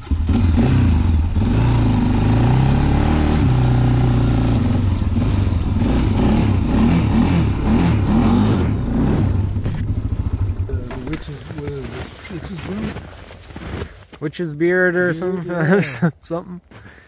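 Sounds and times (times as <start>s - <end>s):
atv engine revving: 0.0s - 13.2s.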